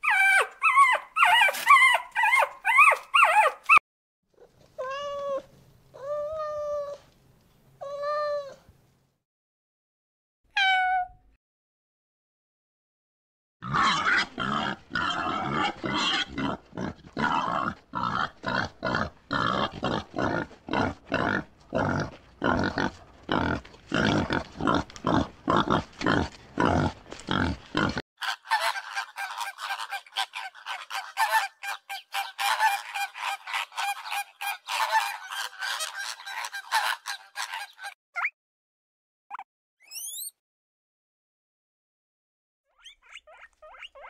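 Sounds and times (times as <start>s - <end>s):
animals calling: 28.2s - 38.3s.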